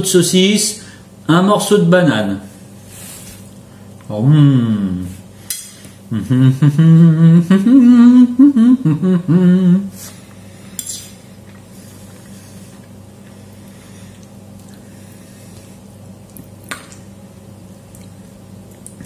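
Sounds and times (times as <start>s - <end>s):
man humming while chewing: 4.0s - 5.2s, 5.9s - 10.5s.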